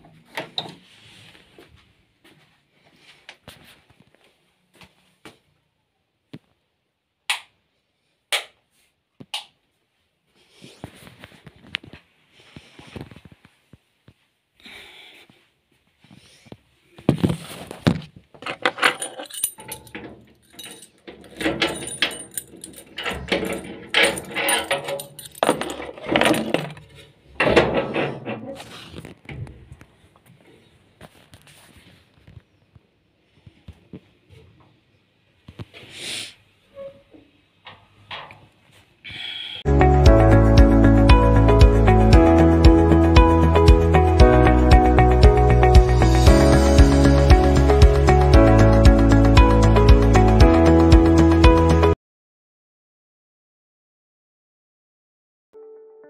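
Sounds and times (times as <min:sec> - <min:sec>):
small hard objects clinking: 0:18.6 - 0:26.9.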